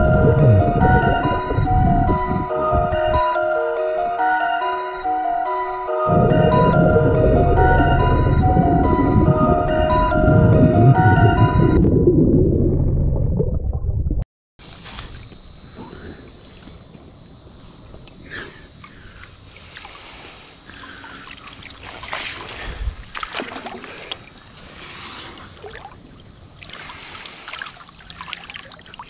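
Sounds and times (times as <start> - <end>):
music: 0.0 - 11.9
steady high hiss: 14.6 - 27.9
shallow river water sloshing: 20.8 - 29.0
small water splashes: 21.0 - 29.0.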